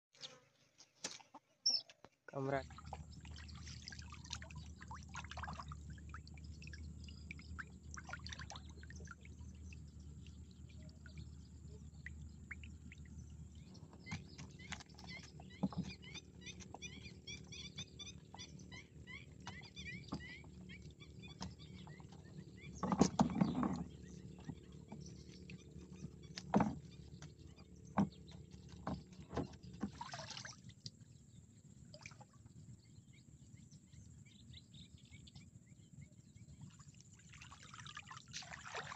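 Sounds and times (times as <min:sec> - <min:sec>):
birds chirping: 0:00.2 - 0:36.8
fish and netting tapping and rustling: 0:13.7 - 0:16.8, 0:21.3 - 0:30.2
rustling splash: 0:37.3 - 0:38.9.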